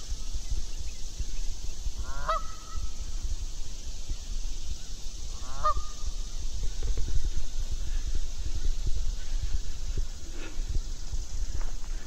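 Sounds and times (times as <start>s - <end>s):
geese honking: 2.0s - 2.8s, 5.4s - 6.0s.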